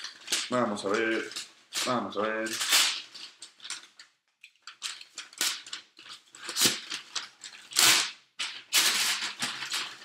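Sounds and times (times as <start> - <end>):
utility knife cutting paper and tape: 7.8 - 8.1.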